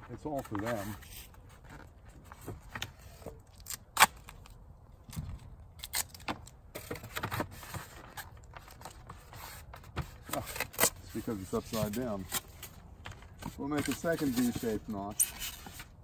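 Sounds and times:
foam board scrapes and taps: 0.3 - 3.4, 6.8 - 15.9.

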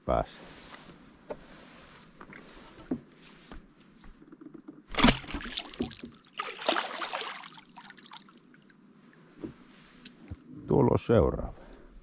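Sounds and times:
spear striking water: 4.9 - 7.5
water splashing and trickling: 4.9 - 8.8.

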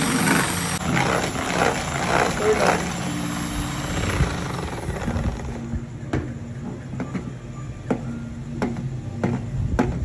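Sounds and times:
electric hand mixer whisking: 0.0 - 5.7.

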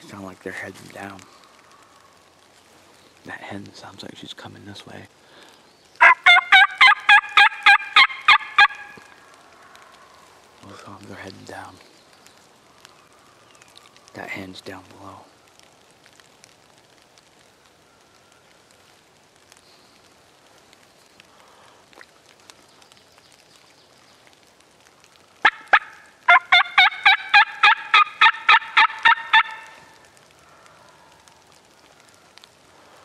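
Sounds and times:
wild turkey yelping: 6.0 - 9.1, 25.4 - 30.0.

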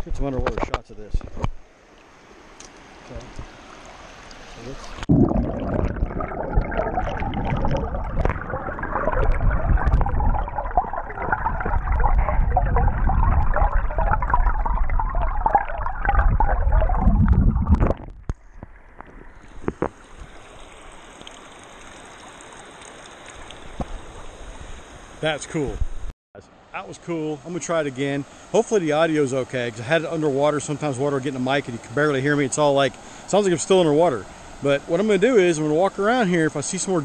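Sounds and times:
muffled underwater creek gurgling: 4.7 - 22.5.

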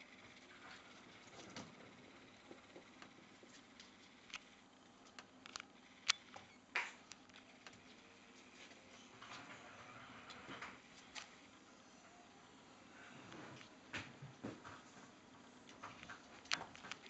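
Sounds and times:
faint clicks and taps: 13.3 - 17.0.

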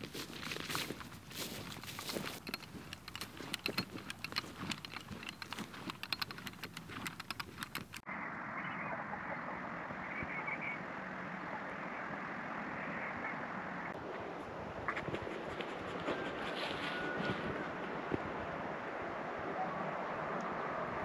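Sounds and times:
footsteps crunching on dry ground: 0.0 - 8.0.

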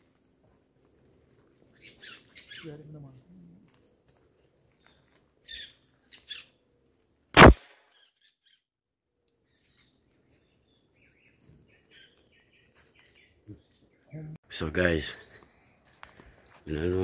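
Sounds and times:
faint bird chirps: 0.1 - 6.6
loud gunshot: 7.4 - 7.8.

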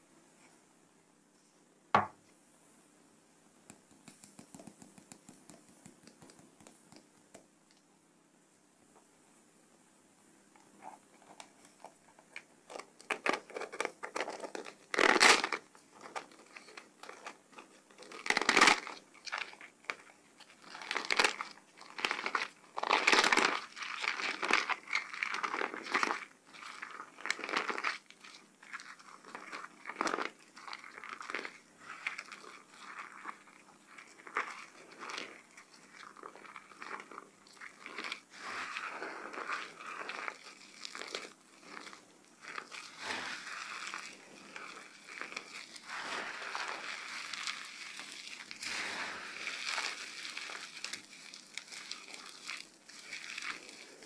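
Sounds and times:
soap foam squished in hands: 18.1 - 54.0.

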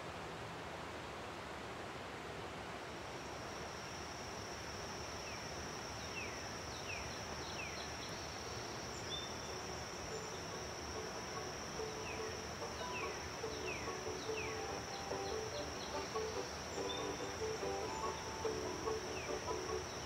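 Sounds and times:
soft hiss: 0.0 - 20.0
high insect trill: 3.3 - 20.0
faint low musical notes: 10.0 - 20.0.

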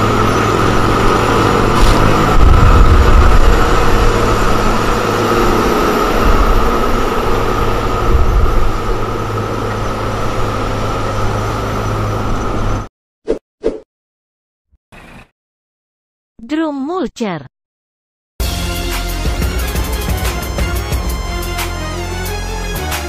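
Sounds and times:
constant high whine: 0.0 - 12.9
diesel engine droning under load: 0.0 - 12.9, 18.4 - 23.0.

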